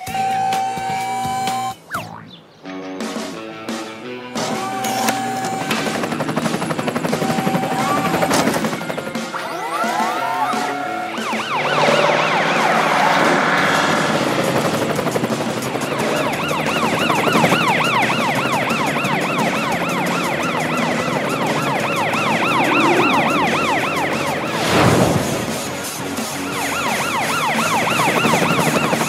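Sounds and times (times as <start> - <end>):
cartoon sirens wailing: 0.0 - 1.9, 4.4 - 29.0
loud whoosh: 22.4 - 26.0.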